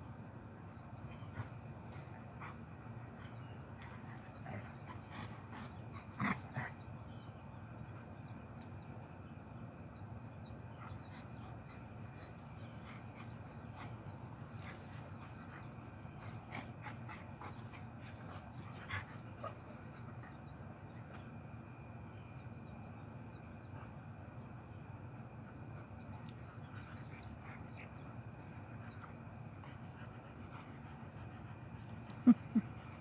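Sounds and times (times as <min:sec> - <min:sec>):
dogs play-wrestling vocal sounds: 0:00.8 - 0:06.9, 0:10.7 - 0:21.3.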